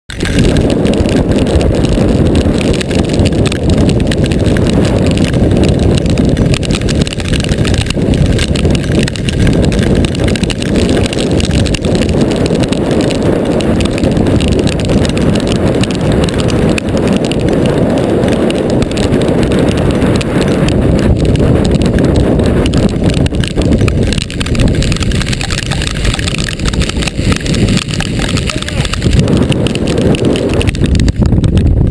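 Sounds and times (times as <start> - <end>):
hail hitting car roof: 0.1 - 31.9
wind buffeting microphone: 0.1 - 31.9.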